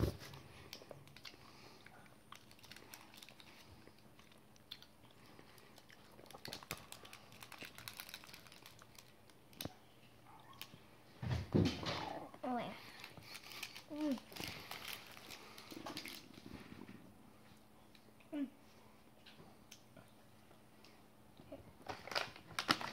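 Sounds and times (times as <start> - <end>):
plastic wrapper crinkling: 2.3 - 9.8, 12.8 - 16.6, 21.8 - 22.9.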